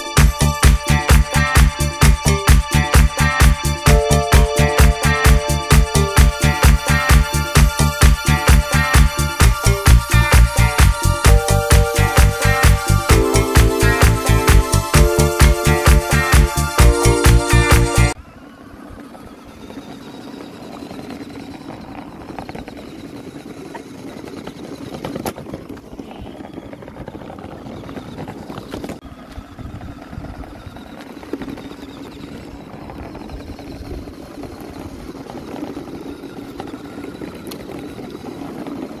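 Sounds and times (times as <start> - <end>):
wheels rolling over asphalt: 18.2 - 39.0
small electric motor running: 18.6 - 25.2, 29.2 - 39.0.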